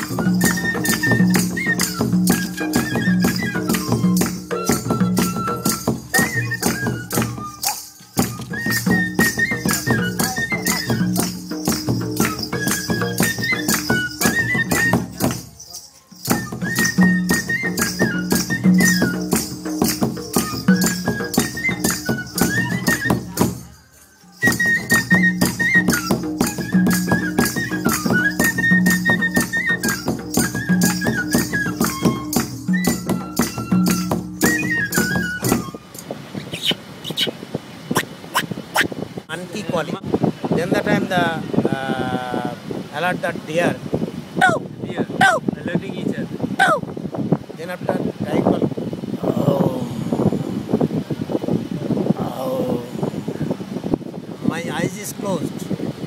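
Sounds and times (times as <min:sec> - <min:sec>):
drum beat: 0:00.0 - 0:15.6, 0:16.2 - 0:23.7, 0:24.4 - 0:35.8
bamboo flute melody: 0:00.0 - 0:37.3, 0:46.6 - 0:46.9
fast rattling percussion: 0:00.0 - 0:37.3
high stepping melody: 0:24.4 - 0:36.0.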